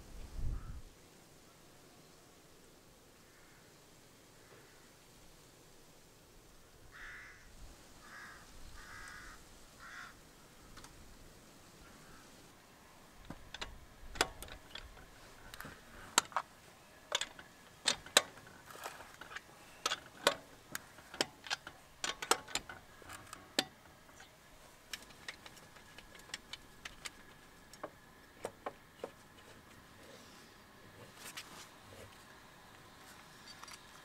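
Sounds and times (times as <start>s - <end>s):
wheel brace clicking on lug nuts: 13.2s - 30.0s.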